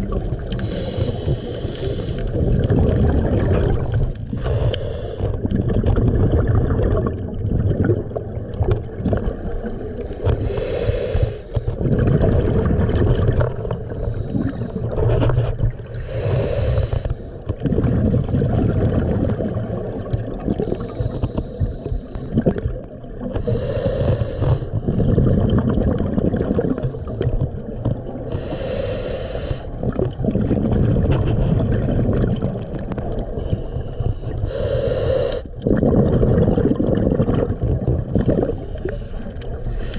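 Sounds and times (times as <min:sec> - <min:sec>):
bubbling exhalations: 0:00.0 - 0:39.9
diver breathing through regulator: 0:00.5 - 0:02.5, 0:03.8 - 0:05.5, 0:09.3 - 0:11.8, 0:13.6 - 0:15.0, 0:15.8 - 0:17.4, 0:20.6 - 0:22.5, 0:23.4 - 0:25.1, 0:28.2 - 0:29.9, 0:33.4 - 0:35.6, 0:38.0 - 0:39.9.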